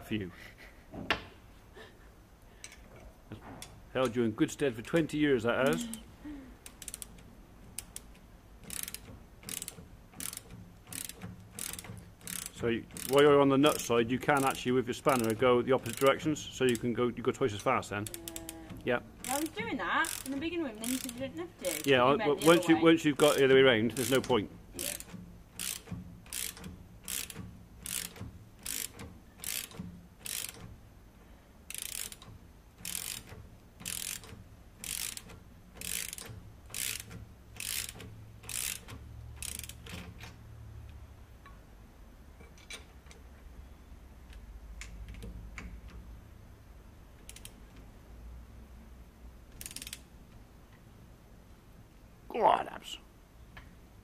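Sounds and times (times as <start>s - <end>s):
ratchet spanner clicking: 5.6s - 16.9s, 17.6s - 30.8s, 31.7s - 40.4s, 47.2s - 47.9s, 49.5s - 50.1s.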